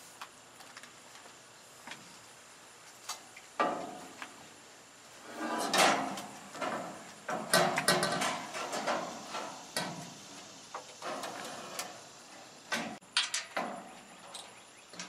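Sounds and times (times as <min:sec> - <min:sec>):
metal knocks clanks and scrapes: 0:03.6 - 0:04.2, 0:05.2 - 0:12.1.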